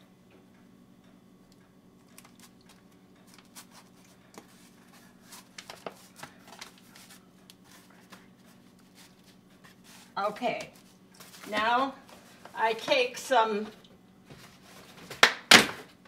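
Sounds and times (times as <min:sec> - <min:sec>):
faint steady hum: 0:00.0 - 0:16.0
foil pan crinkling: 0:02.2 - 0:10.1.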